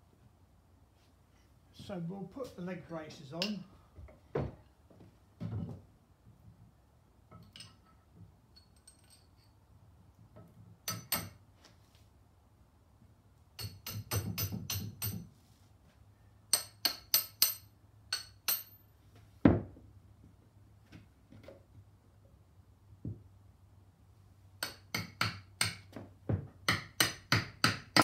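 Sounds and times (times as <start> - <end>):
hammer striking metal bolts: 10.8 - 11.4, 13.6 - 15.3, 16.5 - 18.8.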